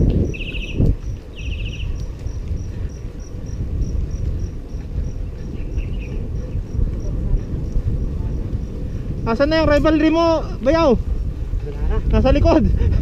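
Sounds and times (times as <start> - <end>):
high insect chirp: 0.0 - 10.2
bicycle road rumble on concrete: 0.0 - 13.0
wind: 0.0 - 13.0.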